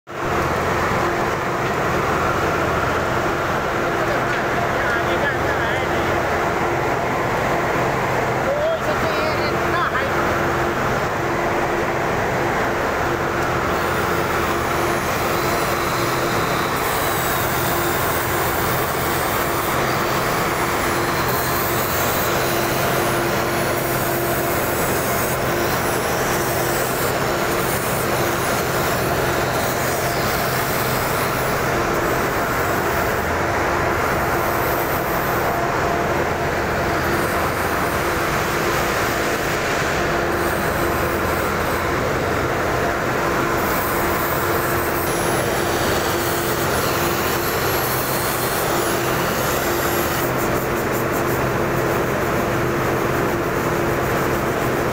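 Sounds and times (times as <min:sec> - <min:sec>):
angle grinder motor whine: 0:13.2 - 0:50.7.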